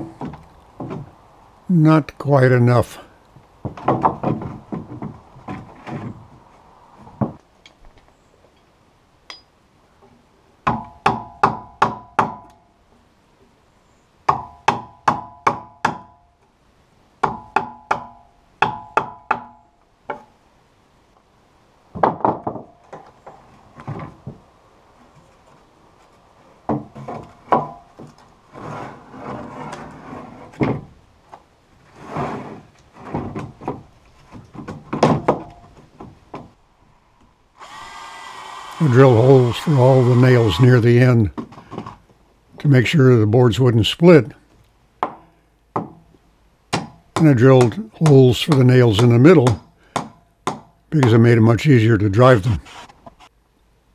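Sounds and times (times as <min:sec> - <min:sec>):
planks scraping: 0:00.0 - 0:01.2, 0:02.7 - 0:07.4, 0:25.0 - 0:36.6
wooden planks knocking: 0:00.0 - 0:01.2, 0:03.6 - 0:06.3, 0:21.9 - 0:24.4, 0:26.6 - 0:28.2, 0:33.0 - 0:36.6.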